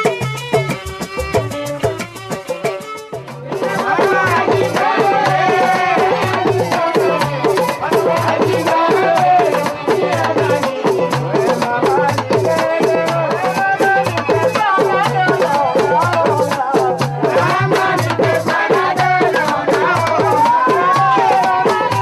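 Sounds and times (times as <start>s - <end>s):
percussion fast steady beat: 0.0s - 22.0s.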